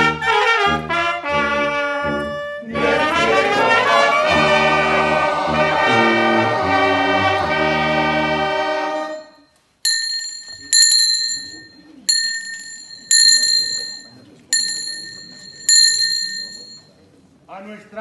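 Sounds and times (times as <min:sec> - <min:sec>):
brass band holding chord: 0:00.0 - 0:09.2
small high-pitched bell struck: 0:09.9 - 0:16.8.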